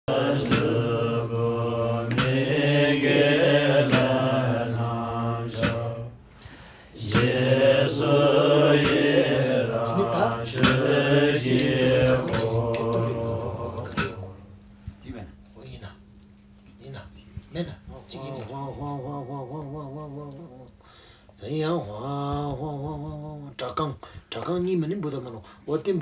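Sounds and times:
mantra chanting: 0.0 - 6.2, 6.9 - 14.5, 16.8 - 26.0
steady low drone: 0.1 - 23.6
sharp percussive strike: 0.4 - 1.0, 2.1 - 2.5, 3.8 - 4.3, 5.5 - 5.9, 7.1 - 7.5, 8.7 - 9.4, 10.5 - 13.2, 13.8 - 14.3.

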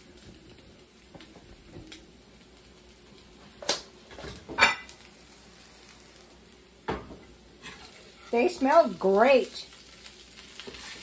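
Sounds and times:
metal spatula scraping frying pan: 7.6 - 8.6, 10.6 - 11.0.

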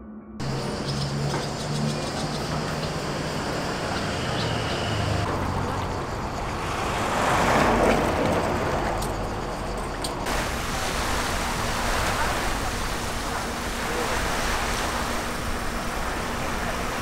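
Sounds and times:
vehicle passing: 0.4 - 12.5.

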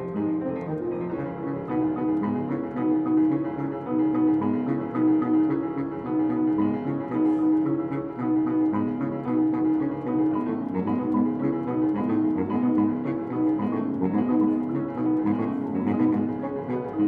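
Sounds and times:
rhythmic piano: 0.0 - 17.0
saxophone held notes: 0.0 - 17.0.

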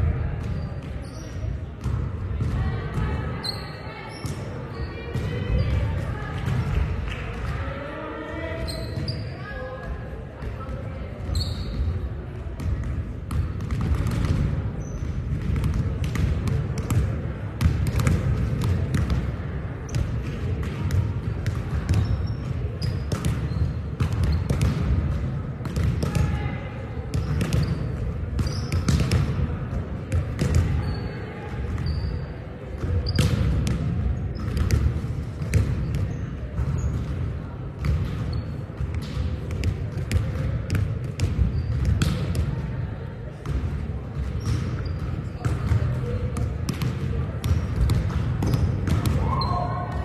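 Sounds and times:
sneakers squeaking on floor: 0.5 - 1.4, 3.4 - 5.9, 8.6 - 9.6, 11.3 - 12.0, 14.8 - 15.2, 21.9 - 24.7, 27.2 - 29.0, 30.8 - 31.1, 31.8 - 32.3, 33.0 - 33.4, 35.8 - 37.0, 38.3 - 38.6, 41.4 - 42.2, 44.4 - 45.5
volleyballs smacking and bouncing: 9.8 - 30.8, 32.7 - 50.0.

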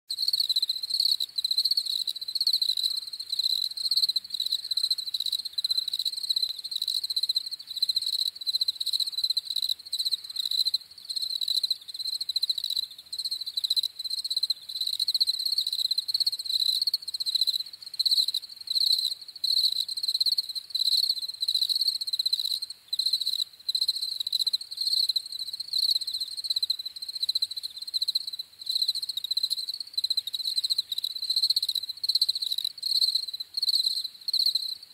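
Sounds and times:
crickets chirping: 0.1 - 34.9.

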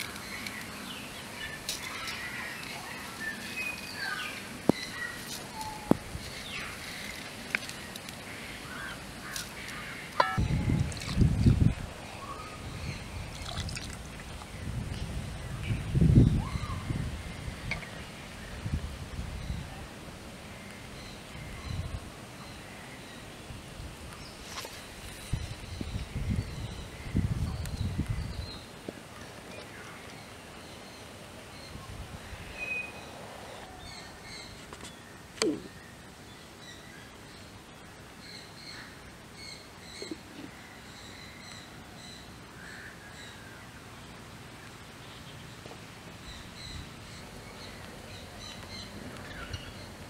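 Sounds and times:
steady outdoor hiss: 0.0 - 50.0
birds chirping: 38.3 - 50.0.

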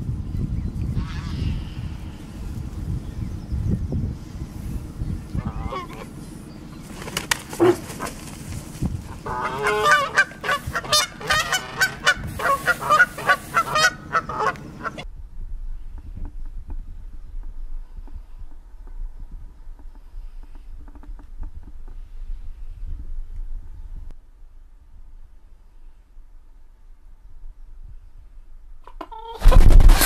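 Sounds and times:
geese honking: 5.3 - 8.4, 9.1 - 15.0.

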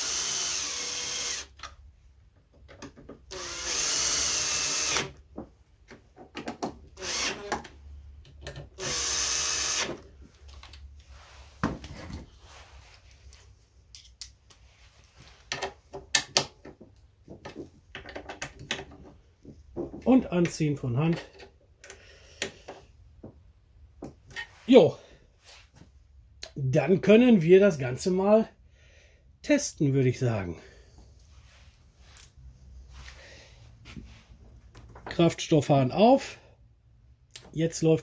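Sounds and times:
cordless drill motor whining: 0.0 - 1.6, 3.3 - 5.2, 7.0 - 7.6, 8.8 - 10.0
tool handling clicks and knocks: 1.6 - 3.3, 5.2 - 8.8, 15.2 - 24.5.

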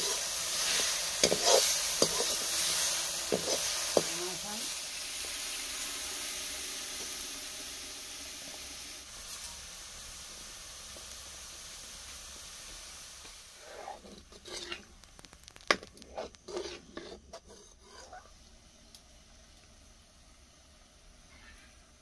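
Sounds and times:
ladle scraping in pan: 0.0 - 4.2, 13.6 - 18.3
hot oil sizzling: 0.0 - 22.0.

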